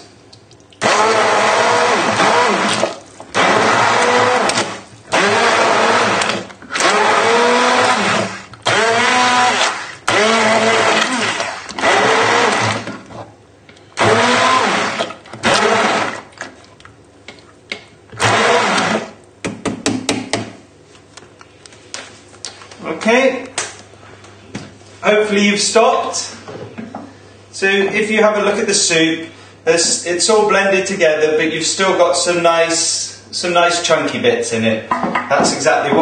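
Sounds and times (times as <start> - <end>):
stick blender whirring in soup: 0.8 - 13.2, 14.0 - 16.5, 18.1 - 19.2.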